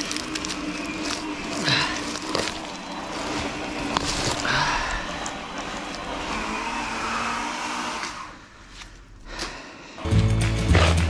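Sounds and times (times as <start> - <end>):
handheld power tool running: 0.0 - 8.4.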